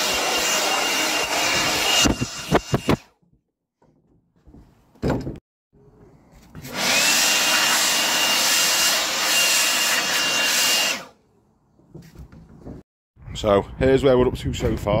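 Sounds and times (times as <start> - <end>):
blower motor whining: 0.0 - 3.0, 6.6 - 11.1.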